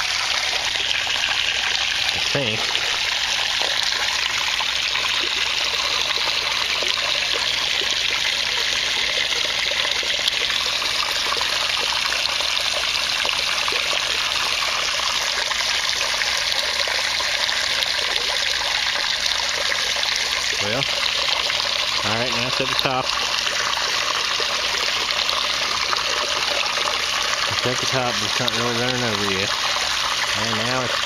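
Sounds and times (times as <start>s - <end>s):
water pouring into aquarium: 0.0s - 31.0s.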